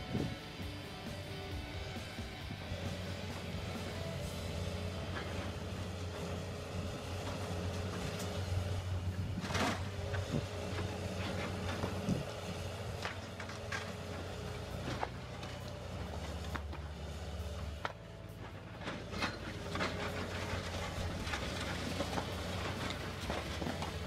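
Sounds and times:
excavator diesel engine running: 0.0 - 24.0
debris cracking and falling: 18.6 - 24.0.

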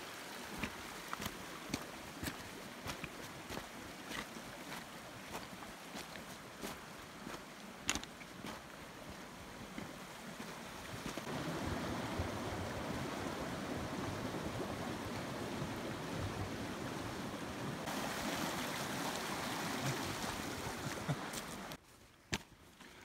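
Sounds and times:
water rushing: 0.0 - 21.8.

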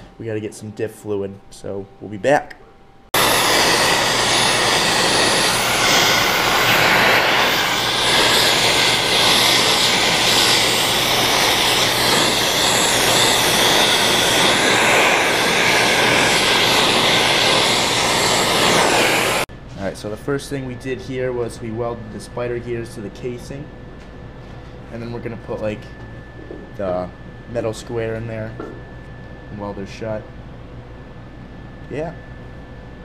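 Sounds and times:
welder arc crackling: 3.2 - 19.5.

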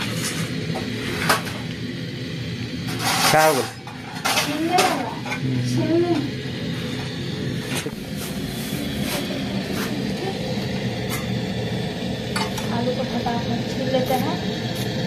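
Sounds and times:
metal utensils and pots clinking: 2.9 - 5.5, 12.3 - 12.8.

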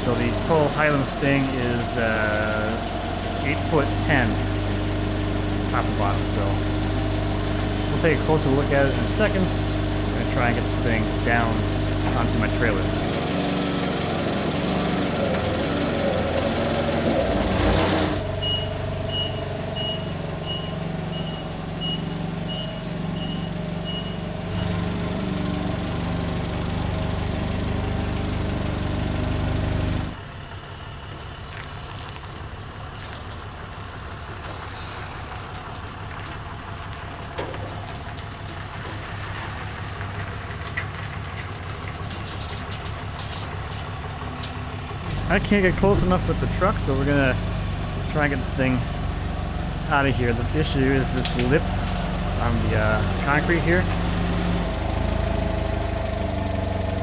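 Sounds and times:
forklift engine running: 0.0 - 57.0
reversing alarm beeping: 18.4 - 24.8.

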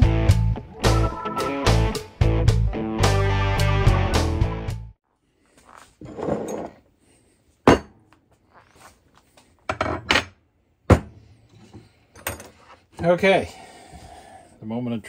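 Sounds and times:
intro music: 0.0 - 4.9
metal scraping on workbench: 6.0 - 6.8.

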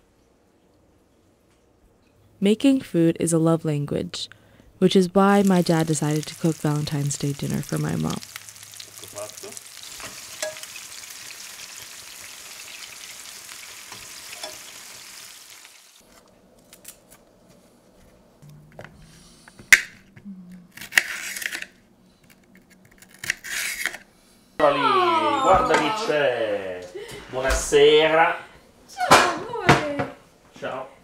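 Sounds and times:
meatballs sizzling in sauce: 5.2 - 16.0
spoon stirring: 9.9 - 10.8.

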